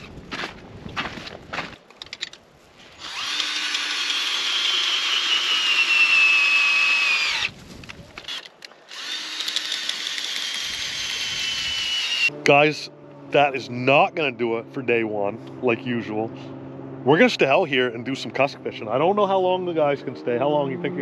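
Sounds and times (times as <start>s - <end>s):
footsteps crunching in snow: 0.0s - 1.9s, 7.5s - 8.2s
cordless drill whining: 3.0s - 7.6s, 8.2s - 12.3s.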